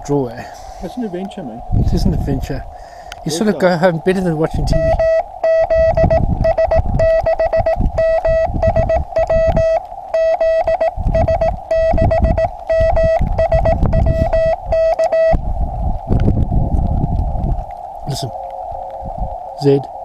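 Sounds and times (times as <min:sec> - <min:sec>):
radio receiver hiss: 0:00.4 - 0:01.7
morse code beeping tone: 0:04.7 - 0:15.4.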